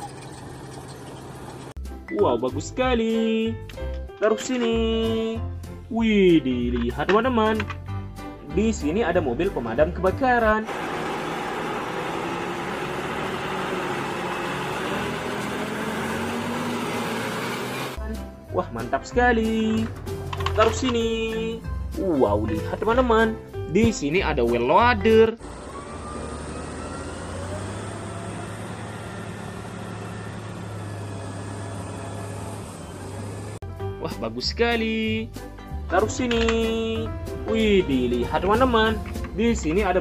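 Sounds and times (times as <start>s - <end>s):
truck diesel engine driving past: 10.7s - 18.0s, 25.4s - 33.6s.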